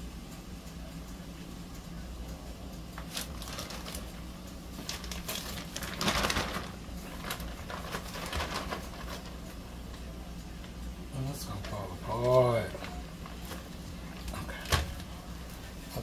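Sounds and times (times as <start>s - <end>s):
steady low hum: 0.0s - 16.0s
plastic bag crinkling: 3.0s - 4.2s, 4.8s - 9.5s.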